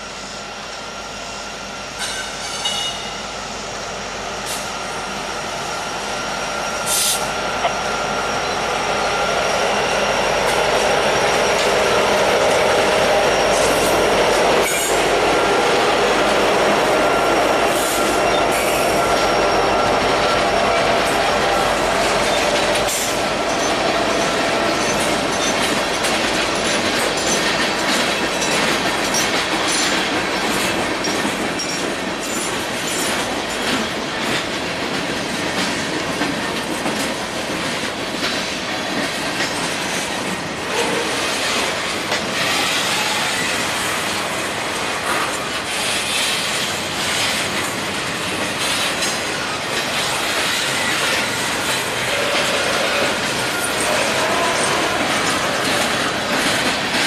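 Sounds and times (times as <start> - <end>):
train wheels rumbling on rail: 0.0 - 57.0
high wheel squeals: 4.6 - 27.4.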